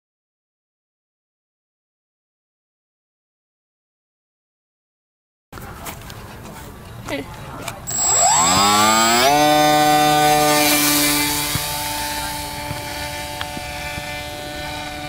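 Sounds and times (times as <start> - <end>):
electric model plane motor whine: 7.9 - 15.0.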